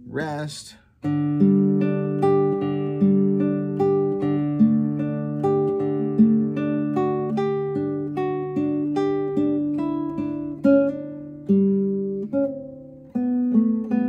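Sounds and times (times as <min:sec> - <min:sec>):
plucked guitar melody: 0:01.0 - 0:14.0.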